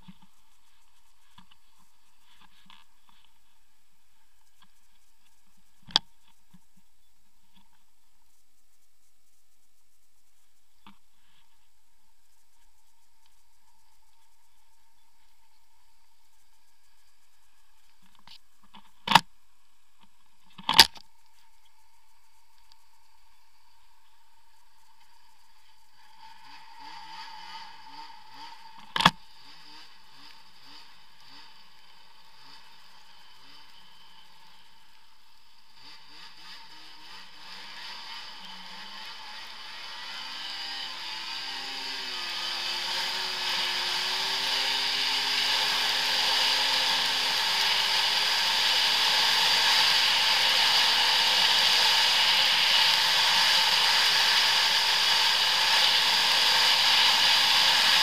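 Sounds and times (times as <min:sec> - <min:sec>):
snowmobile engine accelerating: 0:24.8 - 0:58.0.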